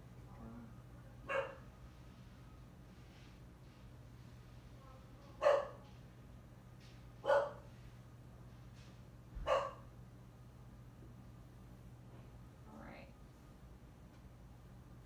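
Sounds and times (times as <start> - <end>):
dog barking: 1.2 - 1.7, 5.4 - 5.9, 7.2 - 7.7, 9.4 - 9.9.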